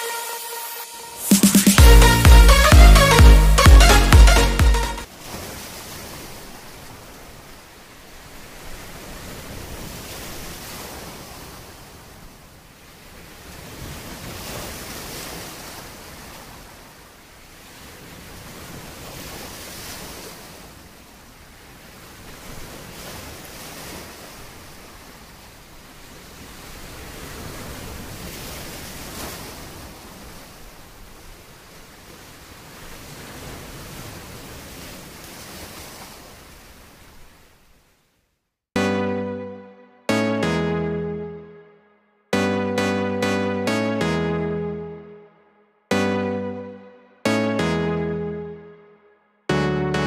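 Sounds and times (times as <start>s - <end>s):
waves washing onto shore: 5.1s - 37.6s.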